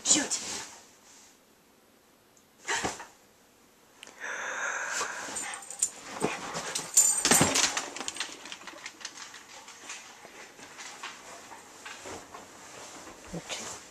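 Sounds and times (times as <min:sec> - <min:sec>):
dog claws clicking on wooden floor: 0:06.6 - 0:11.2.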